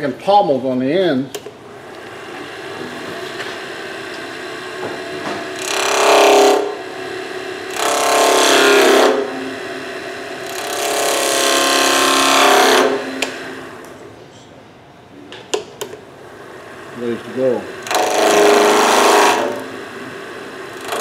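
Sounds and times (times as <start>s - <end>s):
wood lathe humming: 1.4s - 14.2s, 15.8s - 21.0s
chisel cutting spinning wood: 1.9s - 14.0s, 16.4s - 21.0s.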